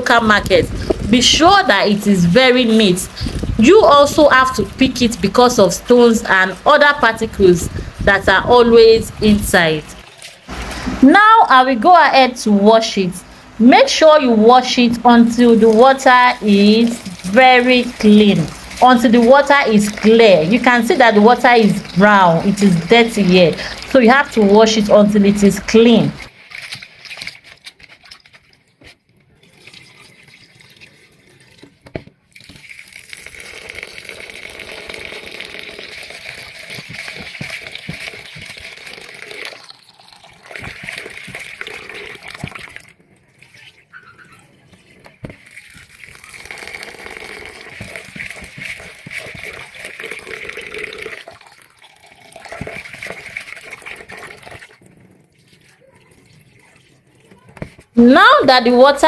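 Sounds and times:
tap water splashing into bowl: 36.3s - 42.9s, 45.2s - 54.8s.

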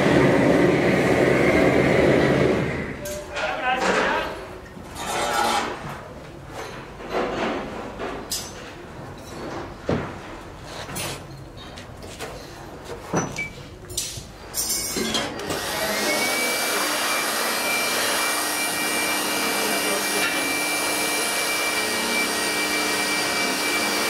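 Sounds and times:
electric air blower running: 0.0s - 3.0s, 15.4s - 24.0s
knocks and scrapes: 3.4s - 13.3s.

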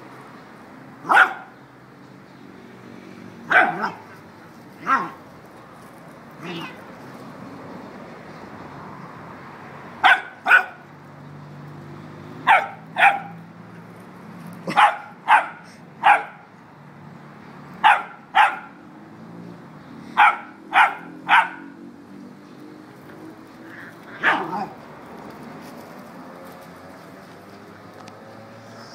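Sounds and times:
puppy barking: 1.0s - 1.6s, 3.4s - 4.2s, 4.8s - 5.2s, 6.4s - 6.8s, 10.0s - 10.9s, 12.4s - 13.4s, 14.6s - 16.5s, 17.8s - 18.8s, 20.1s - 21.9s, 23.8s - 24.8s.

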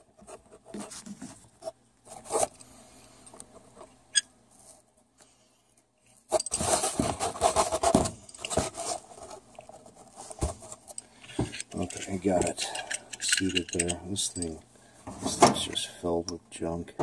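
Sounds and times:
small metal clicks and scrapes: 10.8s - 14.6s.

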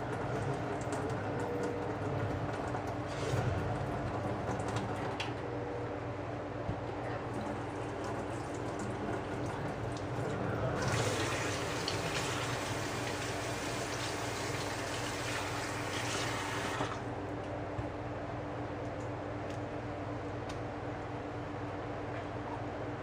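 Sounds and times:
tap water running into sink: 7.4s - 17.0s.

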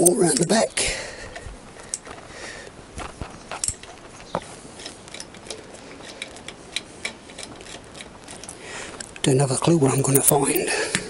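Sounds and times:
socket ratchet clicking: 10.0s - 10.6s.

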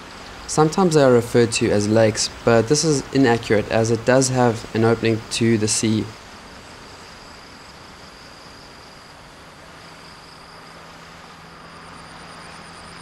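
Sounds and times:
low steady hum: 0.0s - 13.0s
soft hiss: 0.0s - 13.0s.

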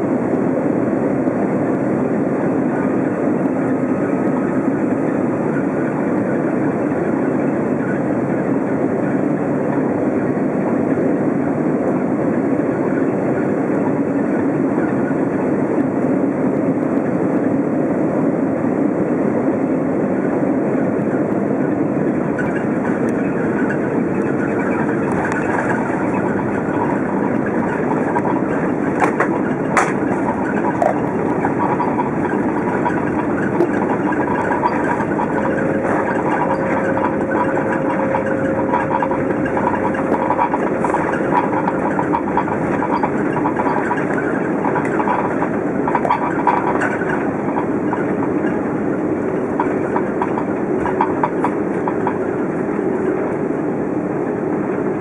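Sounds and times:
jet engine noise: 0.0s - 55.0s
landing gear rumbling on runway: 20.2s - 55.0s.

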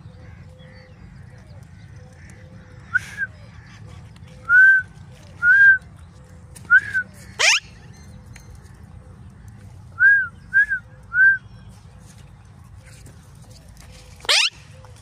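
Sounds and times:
parakeet whistled calls: 7.4s - 7.8s, 14.2s - 14.6s.

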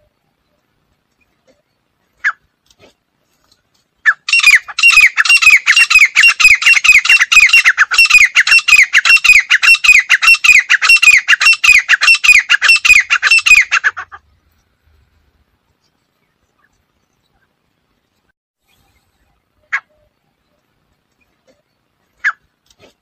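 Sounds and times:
francolin harsh calls: 4.0s - 14.2s.

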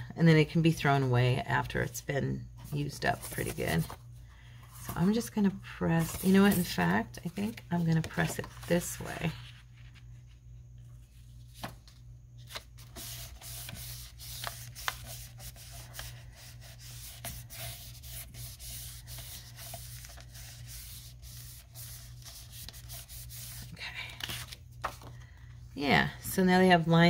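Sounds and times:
paper rubbing on cardboard: 12.8s - 23.7s.

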